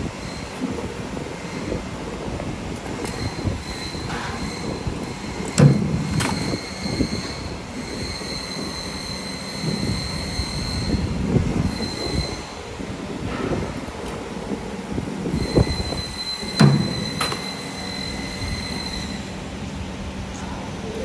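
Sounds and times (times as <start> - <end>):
high machine whine: 0.0 - 21.0.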